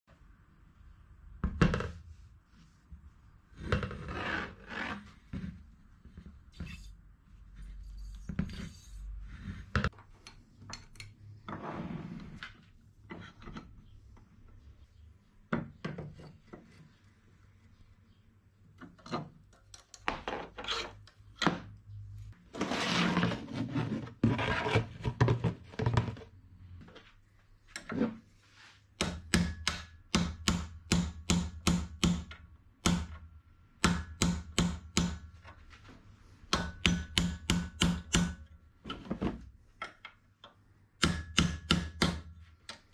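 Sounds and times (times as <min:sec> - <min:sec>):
metal knocking and scraping: 0:07.6 - 0:10.0
hammer striking metal punch: 0:29.0 - 0:33.2, 0:33.8 - 0:35.3, 0:36.5 - 0:38.5, 0:41.0 - 0:42.3.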